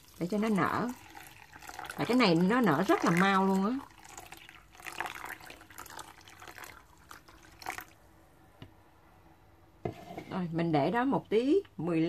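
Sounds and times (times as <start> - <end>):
water pouring into a bowl: 0.0 - 8.0.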